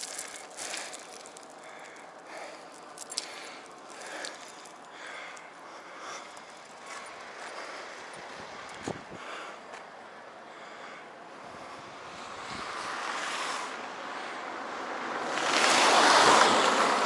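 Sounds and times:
chain links clinking and jingling: 0.0s - 1.7s, 2.5s - 4.9s.

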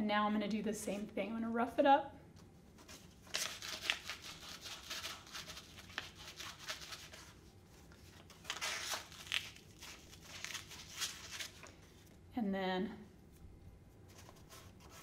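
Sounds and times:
scratchy rubbing on sandpaper: 3.4s - 7.4s.

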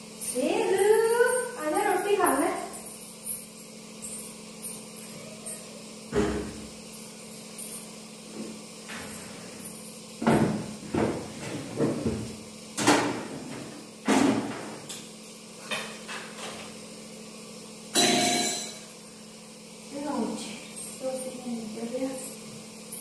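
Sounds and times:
cookware bang: 18.0s - 18.7s.

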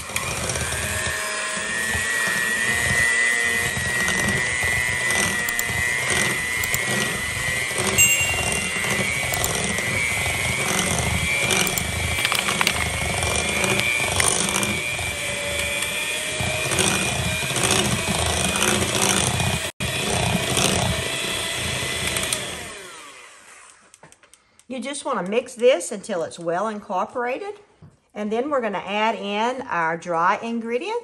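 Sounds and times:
electric hand mixer whining: 0.0s - 23.9s
beaters clicking on glass bowl: 8.0s - 9.5s.

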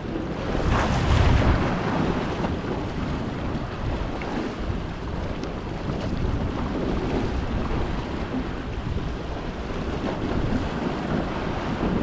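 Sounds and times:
waves splashing on rocks: 0.0s - 9.1s
wind buffeting microphone: 0.0s - 12.0s.

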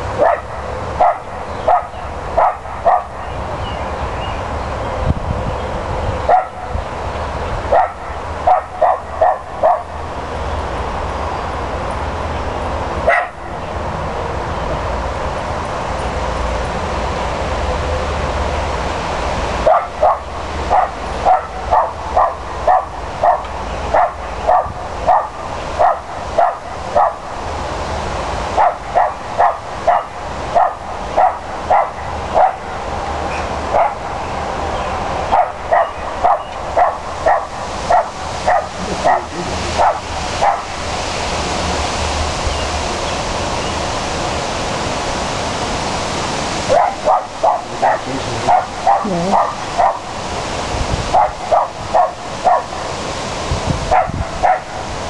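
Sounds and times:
small dog yapping: 46.7s - 50.0s.

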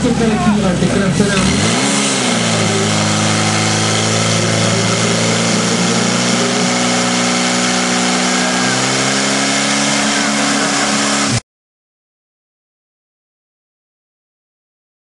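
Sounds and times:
pump engine running at high revs: 0.0s - 11.4s.

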